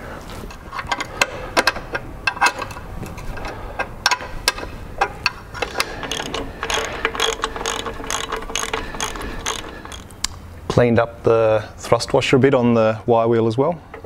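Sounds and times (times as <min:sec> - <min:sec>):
metallic clicks and clanks: 0:00.5 - 0:10.2.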